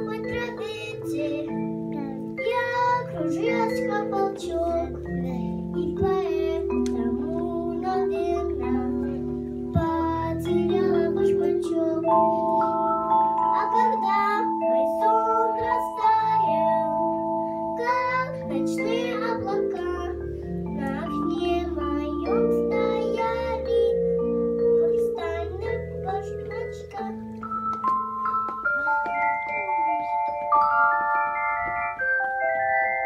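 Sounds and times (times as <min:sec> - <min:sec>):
girl singing into a microphone: 0:00.0 - 0:27.5
backing music with held notes: 0:00.0 - 0:33.0.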